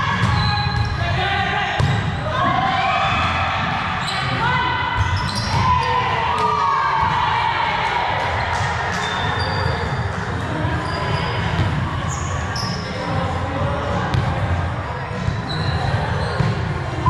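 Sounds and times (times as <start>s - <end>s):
indistinct voices in echoing hall: 0.0s - 17.0s
sneakers squeaking on court floor: 0.1s - 1.0s, 5.0s - 5.9s, 8.9s - 13.2s, 15.1s - 17.0s
volleyball thudding: 1.8s - 2.2s.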